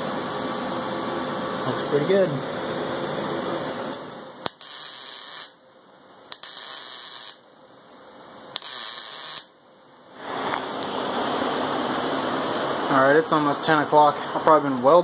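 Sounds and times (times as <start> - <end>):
welder crackling hiss: 3.9 - 5.6, 6.3 - 7.4, 8.5 - 9.6, 10.2 - 15.0.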